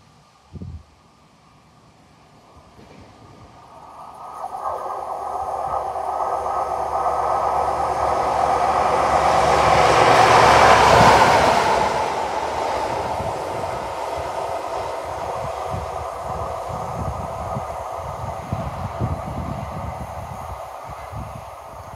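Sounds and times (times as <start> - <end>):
diesel train passing: 1.2 - 21.9
train wheels on rails: 2.3 - 21.9.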